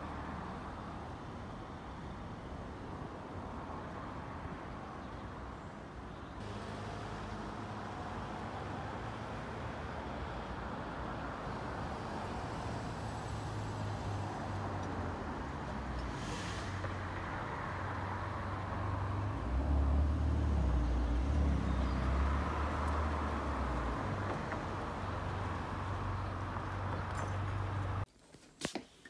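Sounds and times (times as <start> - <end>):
road traffic passing: 0.0 - 28.1
vehicle passing close: 12.0 - 28.0.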